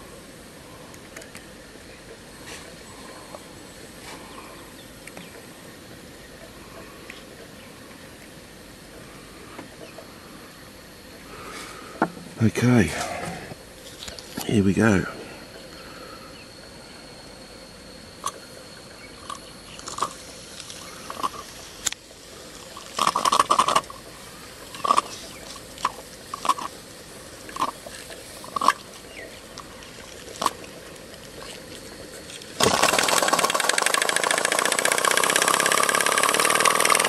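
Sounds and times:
steam puffs and clicks: 30.3 - 37.0
steam engine chuffing: 32.6 - 37.0.

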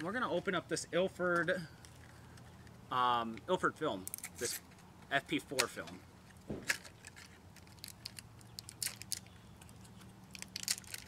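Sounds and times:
crinkling foil wrapper: 6.7 - 11.0.

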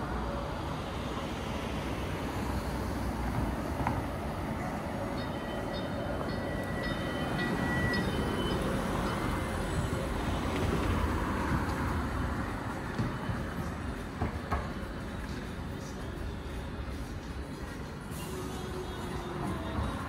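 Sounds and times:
train rumbling: 0.0 - 20.0
high-pitched train squeals: 4.8 - 10.7.

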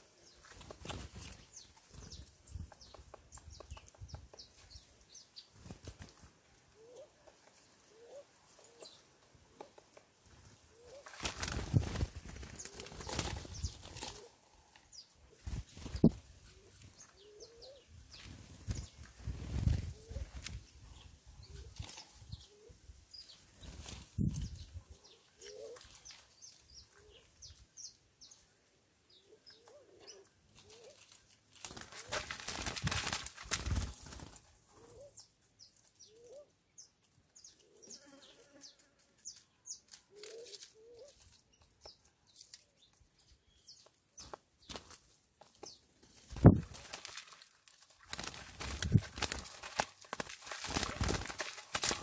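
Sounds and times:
small birds chirping: 0.0 - 32.8, 33.5 - 52.0
rustling bursts: 48.0 - 52.0.

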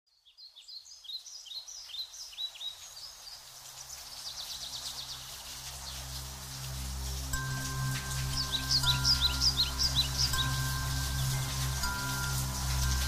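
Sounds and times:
birds chirping and trilling: 0.1 - 13.0
soft droning music: 3.1 - 13.0.

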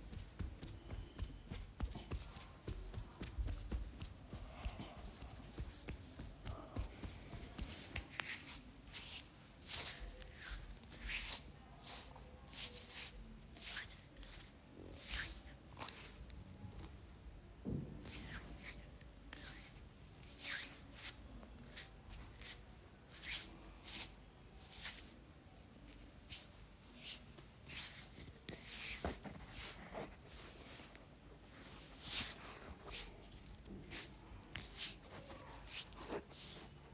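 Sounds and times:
hands rustling through hair: 0.0 - 13.0.

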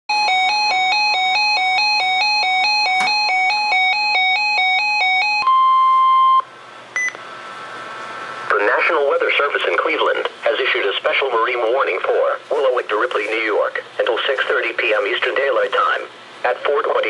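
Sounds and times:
steady warning tone: 0.1 - 7.2
radio button beep: 7.0 - 7.2.

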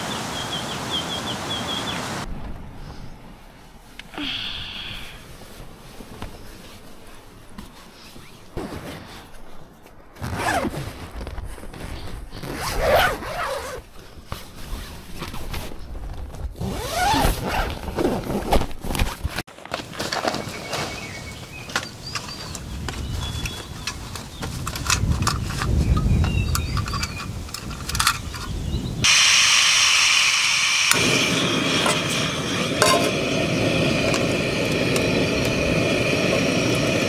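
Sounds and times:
tent zipper being pulled open: 10.2 - 19.3.

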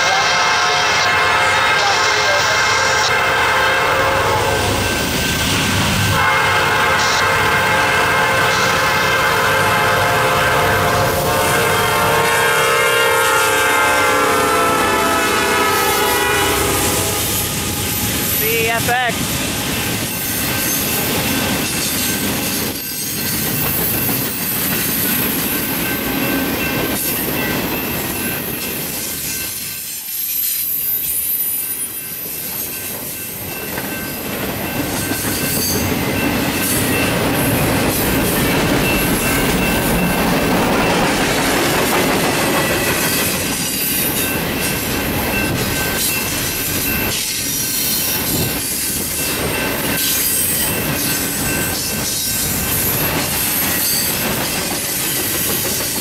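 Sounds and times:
steel wheels rumbling on rail: 0.0 - 56.0.

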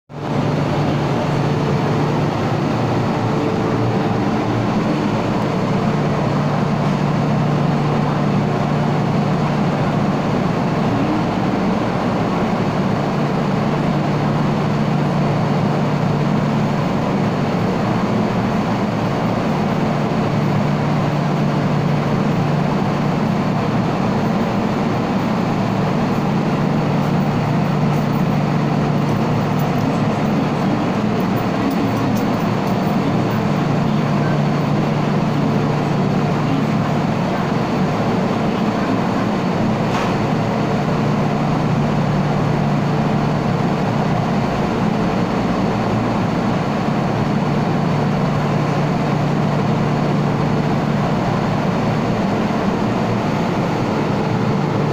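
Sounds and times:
low drone: 0.1 - 54.9
train equipment humming: 0.1 - 54.9.

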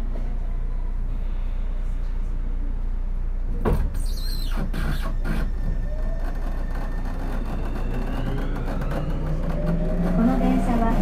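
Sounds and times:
wheels rumbling on rails: 4.3 - 11.0
electric train motor whine: 4.7 - 11.0.

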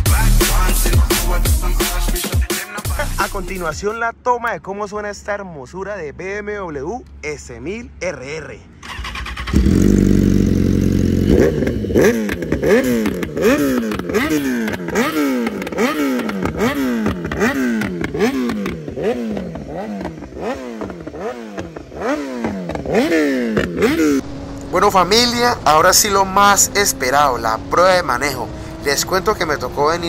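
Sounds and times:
motorcycle engine revving: 8.8 - 30.0.

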